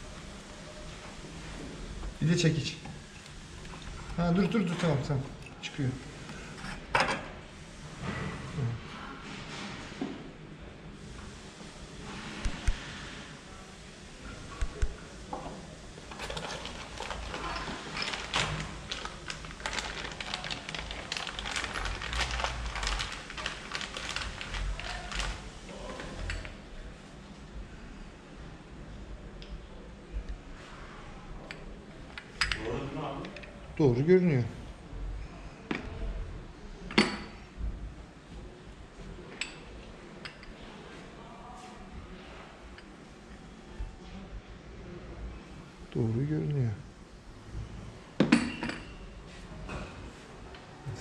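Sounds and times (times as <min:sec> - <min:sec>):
plastic wrapping crinkling: 0:16.1 - 0:25.6.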